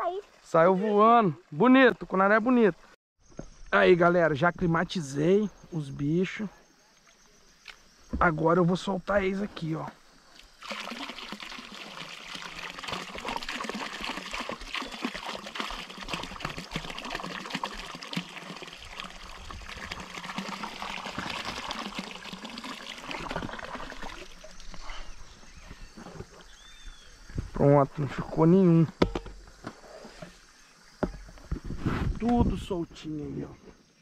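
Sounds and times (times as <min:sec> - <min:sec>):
water pouring from a plastic jug: 0:10.3 - 0:26.7.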